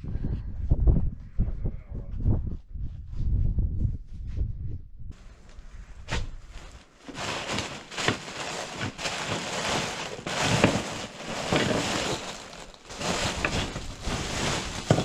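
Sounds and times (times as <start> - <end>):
insulation rustling and crinkling: 5.2 - 15.0.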